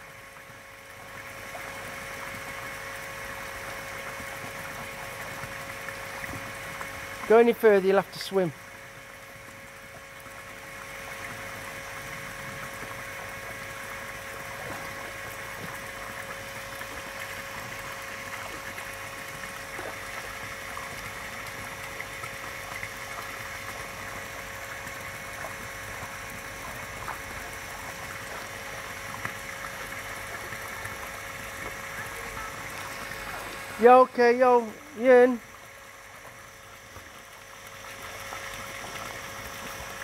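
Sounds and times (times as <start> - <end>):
faint steady hum: 0.0 - 40.0
pond water bubbling: 0.0 - 40.0
small splashes of wading dogs: 8.8 - 33.9, 35.5 - 40.0.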